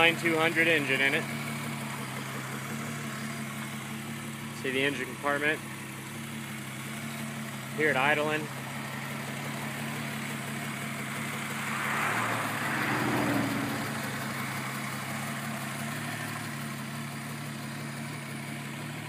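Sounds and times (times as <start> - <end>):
car engine idling: 0.0 - 19.0
engine rushing swell: 10.0 - 16.1.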